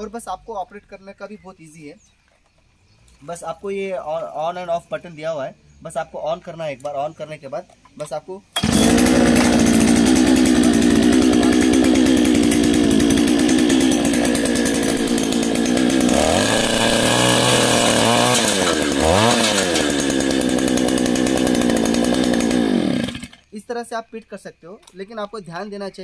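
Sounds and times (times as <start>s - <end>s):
two-stroke auger engine running: 8.6s - 23.4s.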